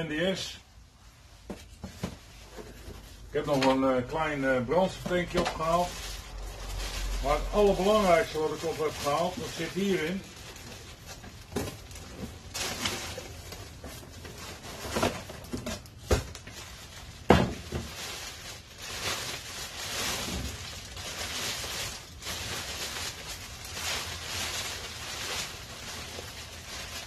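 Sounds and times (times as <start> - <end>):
plastic bags rustling: 0.2 - 27.0.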